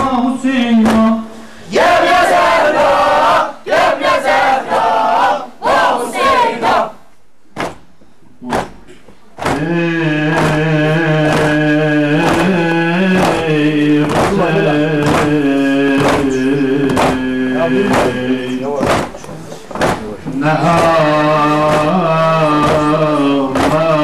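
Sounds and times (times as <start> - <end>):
men chanting in unison: 0.0 - 6.9, 9.4 - 19.2, 19.8 - 24.0
droning mourning chant: 0.0 - 7.0, 9.4 - 24.0
sharp beat: 7.6 - 19.2, 19.8 - 24.0.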